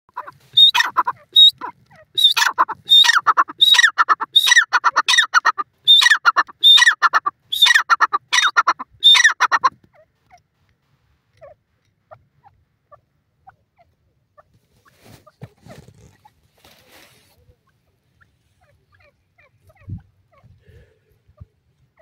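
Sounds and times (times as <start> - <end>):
francolin calling shrill phrases: 0.2 - 9.7.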